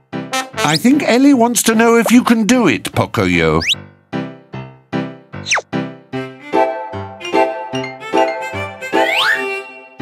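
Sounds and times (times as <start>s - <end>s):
bouncy cartoon music: 0.0s - 2.5s, 3.2s - 4.0s, 5.4s - 10.0s.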